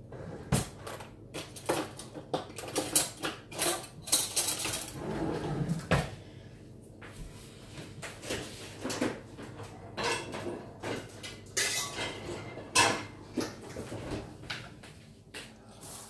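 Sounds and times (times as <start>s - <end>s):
dishes and utensils clattering: 0.4s - 6.1s, 8.0s - 14.8s.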